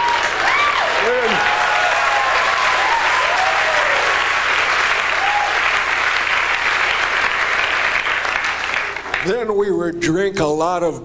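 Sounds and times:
people whooping: 0.0s - 5.9s
audience applauding: 0.0s - 9.7s.

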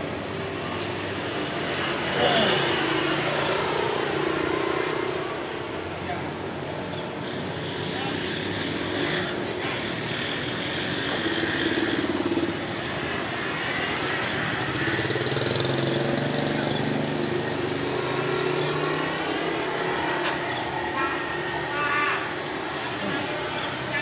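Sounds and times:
motorcycles riding past: 0.0s - 24.0s.

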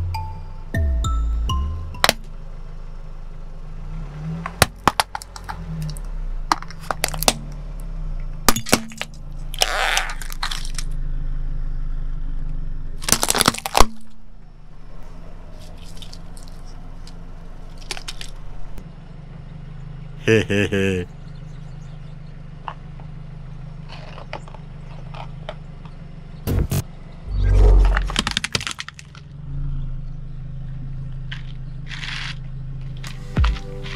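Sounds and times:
grinding crunch: 3.8s - 11.6s, 12.4s - 18.8s, 22.6s - 29.4s, 30.8s - 33.9s
plastic toy cracking under tyre: 4.6s - 7.5s, 8.5s - 11.0s, 13.0s - 14.2s, 15.6s - 18.4s, 28.1s - 29.3s
low steady hum: 26.5s - 30.8s.

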